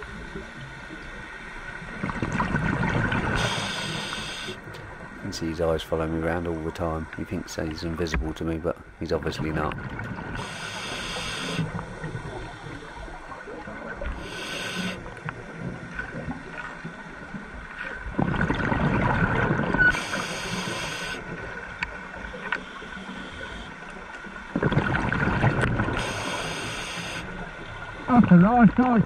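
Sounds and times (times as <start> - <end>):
exhaled bubbles gurgling: 1.8 - 5.3, 9.3 - 21.7, 24.5 - 29.0
regulator hissing inhales: 3.4 - 4.6, 10.4 - 11.7, 14.1 - 15.1, 19.9 - 21.2, 26.0 - 27.3.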